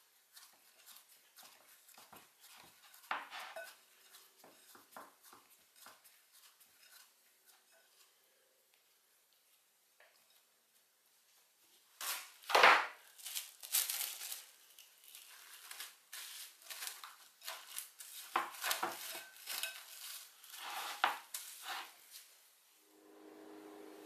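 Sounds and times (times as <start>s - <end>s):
cling wrap crinkling: 12.0s - 22.3s.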